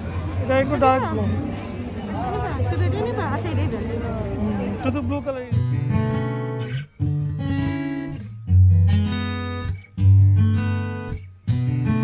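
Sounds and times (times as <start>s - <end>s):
strummed acoustic guitar: 4.9s - 12.0s.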